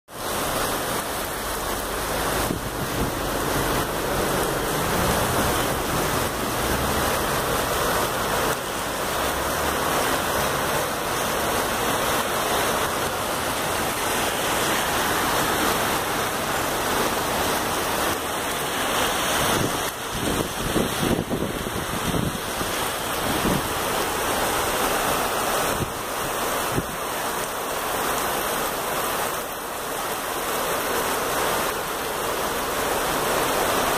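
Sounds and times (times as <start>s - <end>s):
heavy rain and hail on street: 0.1s - 33.9s.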